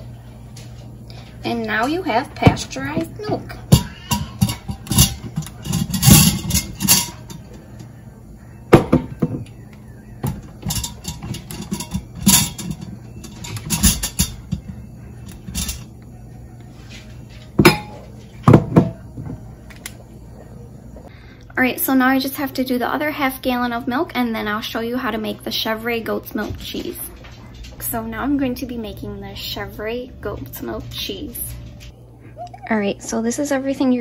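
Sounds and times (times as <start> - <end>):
glass jars clinking on metal: 2.4 - 7.6, 10.2 - 16.0, 17.4 - 19.0.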